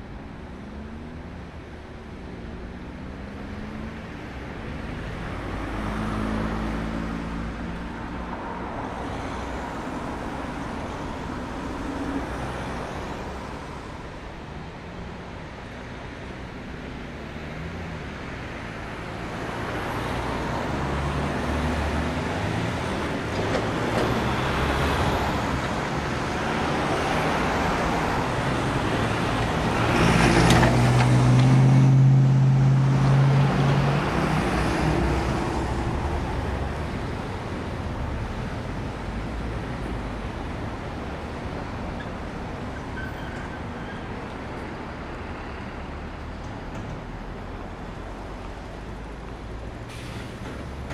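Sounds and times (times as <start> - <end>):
traffic passing: 0.0 - 50.9
vehicle with low engine drone: 0.0 - 50.9.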